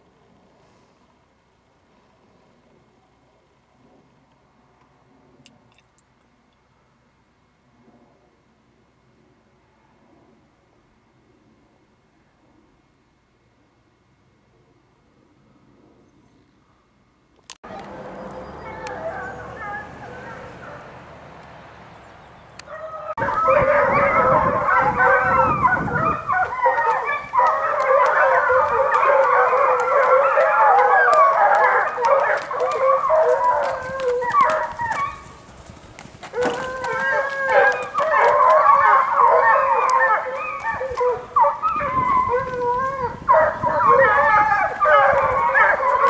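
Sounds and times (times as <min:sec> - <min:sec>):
pack of hounds baying: 0:17.7 - 0:21.0, 0:22.6 - 0:35.5, 0:36.2 - 0:46.0.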